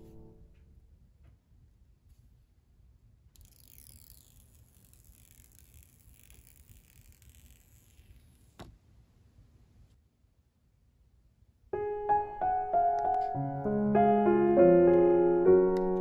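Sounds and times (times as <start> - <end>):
protective film peeling rustle: 3.4 - 8.6.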